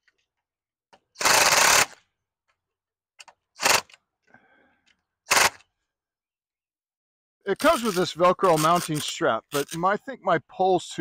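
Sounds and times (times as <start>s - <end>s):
power driver driving screws: 3.2s - 4.0s, 5.3s - 5.6s, 7.6s - 9.8s.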